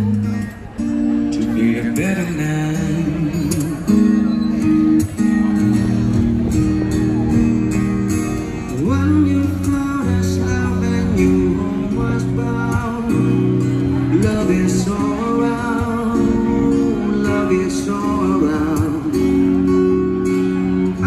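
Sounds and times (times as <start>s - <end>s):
instrumental backing: 0.0s - 21.0s
person singing: 8.7s - 19.6s.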